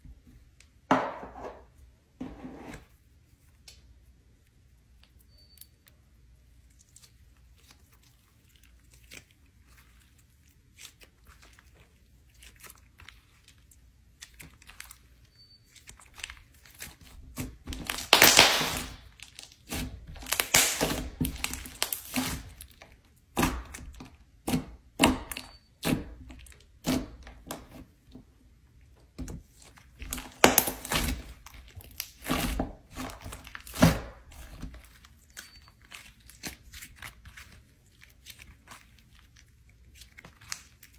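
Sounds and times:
slime crackling and tearing: 6.7s - 25.6s, 29.5s - 40.9s.

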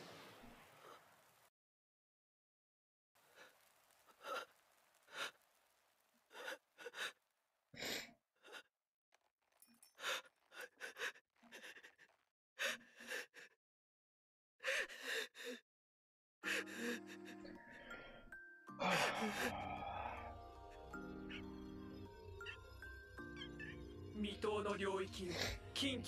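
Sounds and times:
sniffs and shaky breaths: 9.6s - 13.6s
man crying: 18.8s - 21.4s.

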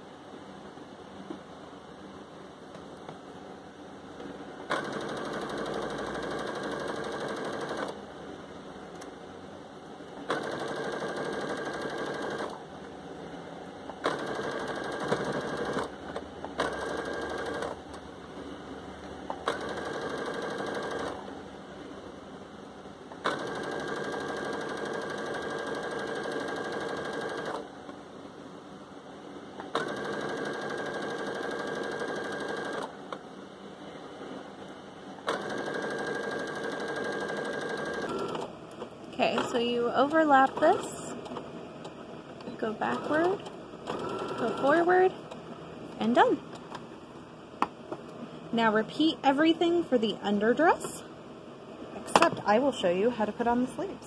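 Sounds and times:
sewing machine stitching: 4.7s - 8.0s, 10.3s - 12.6s, 14.0s - 16.0s, 16.6s - 17.8s, 19.5s - 21.2s, 23.2s - 27.6s, 29.7s - 32.9s, 35.3s - 38.5s, 42.8s - 45.0s.

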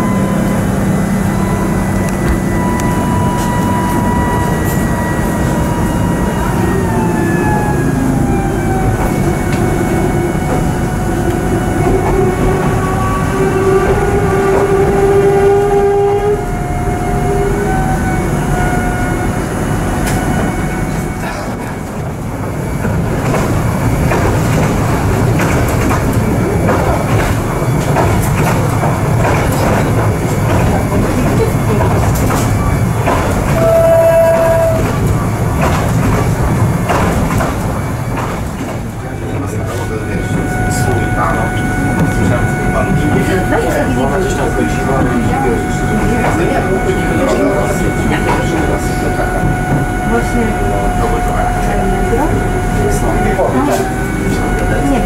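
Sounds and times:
multi-tone whine: 0.0s - 15.0s
train rumble inside carriage: 0.0s - 55.0s
wheels clicking over rail joints: 22.8s - 39.9s.

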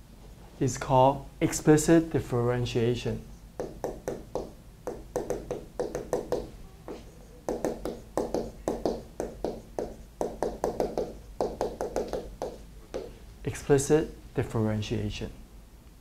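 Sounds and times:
marker squeaking on board: 3.6s - 13.2s.

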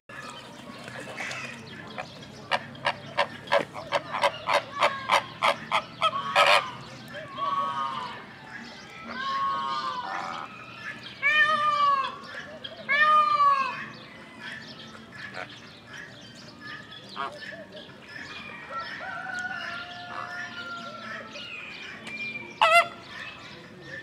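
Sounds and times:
flamingos honking: 0.9s - 14.6s, 22.0s - 23.4s.

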